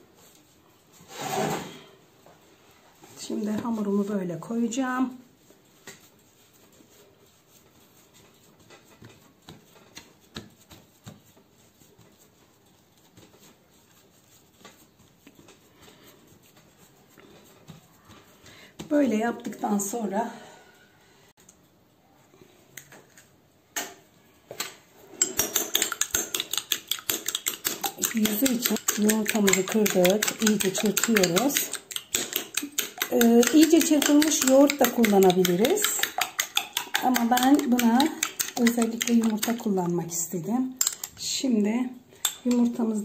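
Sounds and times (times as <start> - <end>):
hands handling dough: 0.0 - 1.3, 2.2 - 19.9
spoon clinking in porcelain bowl: 25.2 - 39.6.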